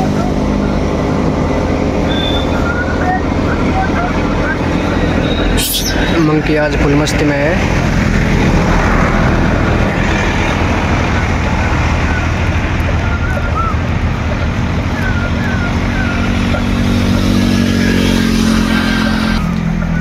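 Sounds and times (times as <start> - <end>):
road traffic passing: 0.0 - 20.0
vehicle engine approaching: 0.0 - 20.0.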